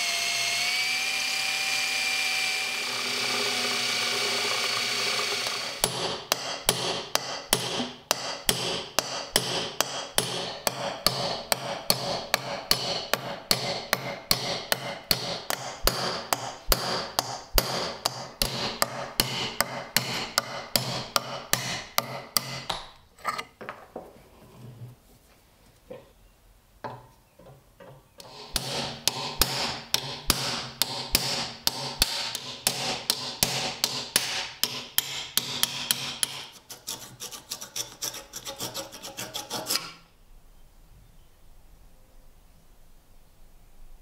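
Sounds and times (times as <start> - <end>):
cordless drill running: 0.0 - 5.9
hammer tapping: 5.8 - 22.9, 27.8 - 39.9.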